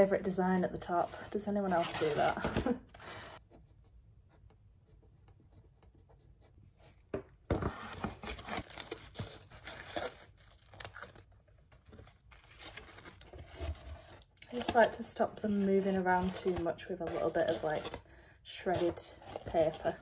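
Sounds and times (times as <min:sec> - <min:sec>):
paper and cardboard crinkling: 0:00.0 - 0:03.4, 0:07.5 - 0:18.0.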